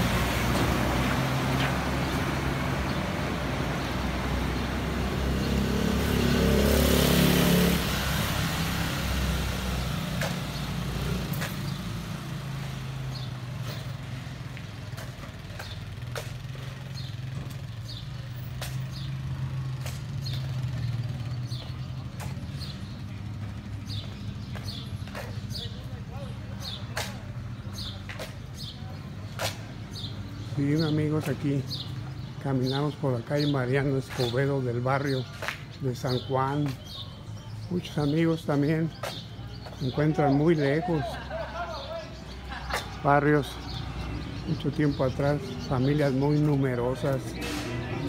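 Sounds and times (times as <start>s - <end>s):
vehicle engine passing: 0.0s - 25.6s, 38.5s - 48.0s.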